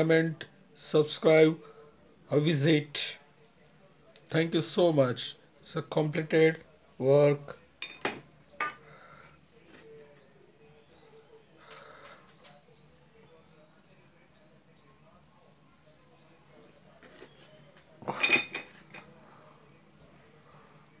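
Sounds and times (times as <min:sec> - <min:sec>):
bird chirping: 0:09.8 - 0:17.9.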